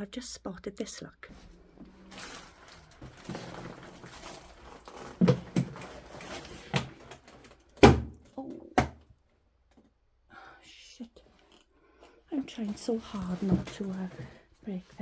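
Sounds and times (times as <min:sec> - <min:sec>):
shuffling and rustling: 0:01.3 - 0:07.6, 0:12.4 - 0:15.0.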